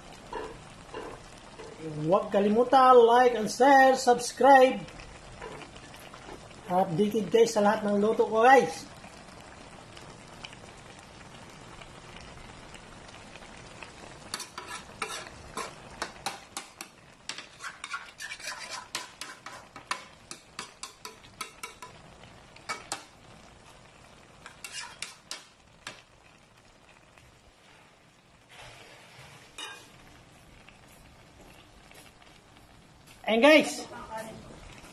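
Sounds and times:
low sizzle: 0:00.0 - 0:34.9
metal spoon scraping a wok: 0:00.3 - 0:01.8, 0:14.3 - 0:22.0, 0:24.4 - 0:25.4, 0:28.5 - 0:30.0.

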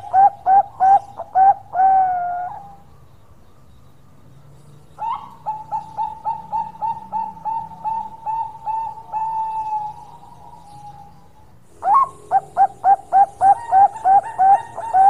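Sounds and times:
dove cooing: 0:00.0 - 0:02.8, 0:05.0 - 0:15.0.

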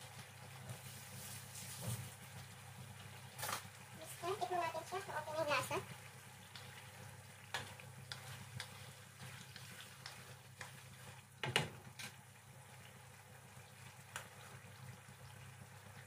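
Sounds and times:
spatula stirring sauce: 0:04.1 - 0:12.1
sauce bubbling and popping: 0:04.9 - 0:16.0.

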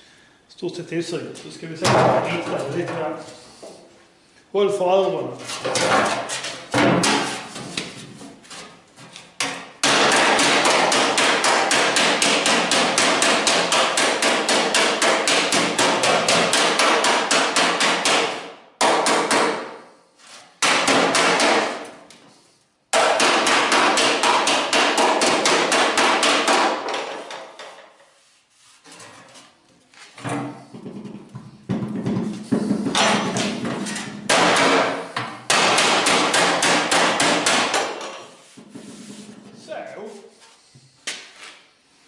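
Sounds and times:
slapper striking steel sheet: 0:05.7 - 0:07.8, 0:30.9 - 0:38.1.

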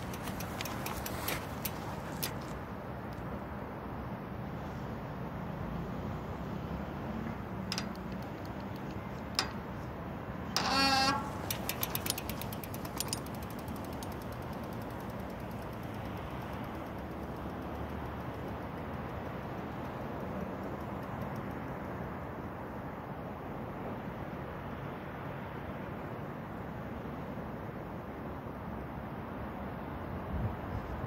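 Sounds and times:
quick clicks: 0:00.0 - 0:03.2, 0:07.5 - 0:09.9, 0:10.6 - 0:19.0
distant road traffic hum: 0:00.0 - 0:31.0.

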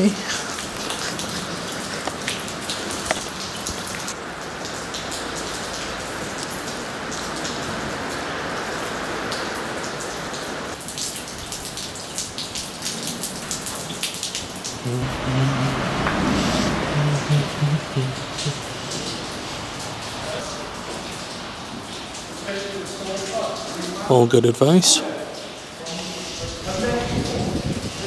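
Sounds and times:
heavy rain hissing: 0:00.0 - 0:10.8, 0:14.6 - 0:28.0.

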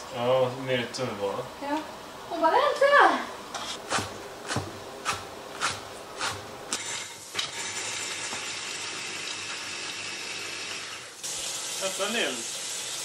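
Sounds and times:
knife chopping on wooden board: 0:03.8 - 0:06.5
chicken sizzling in a skillet: 0:10.6 - 0:13.0.

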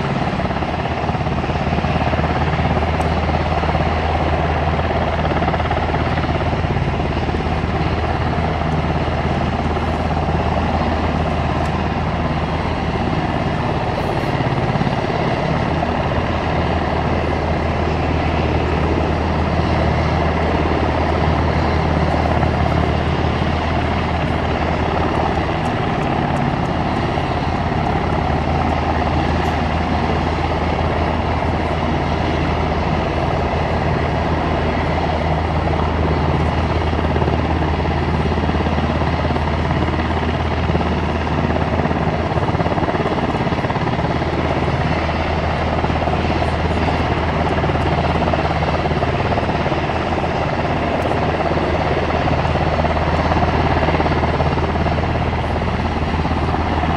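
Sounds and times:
helicopter droning: 0:00.0 - 0:56.9.

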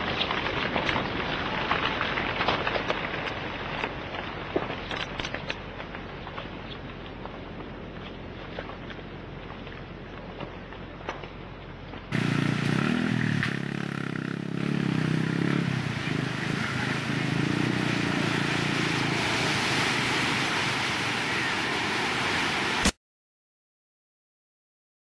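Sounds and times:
muddy water rushing and churning: 0:12.1 - 0:23.0.

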